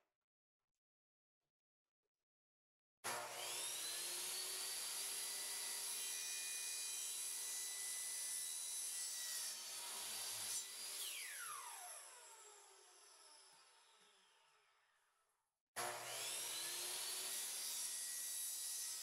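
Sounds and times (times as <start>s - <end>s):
miter saw cutting plastic pipe: 3.1s - 14.2s, 15.8s - 19.0s.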